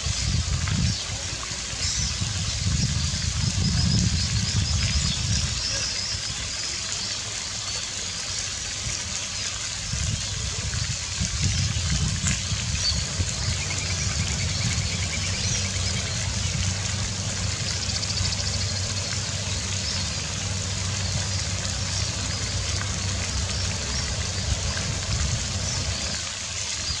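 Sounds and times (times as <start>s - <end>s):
low rumble: 11.8s - 26.2s.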